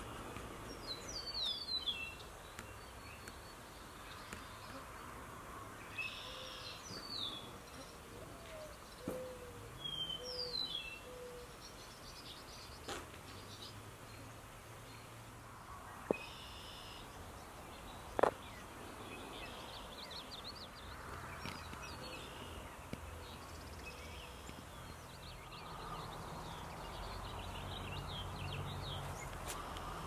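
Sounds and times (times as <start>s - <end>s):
birds chirping and singing: 5.9s - 13.8s.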